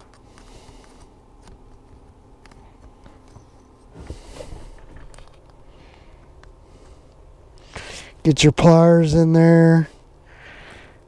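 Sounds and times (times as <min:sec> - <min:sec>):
soft rustle: 0:00.0 - 0:07.7
low steady hum: 0:00.0 - 0:11.0.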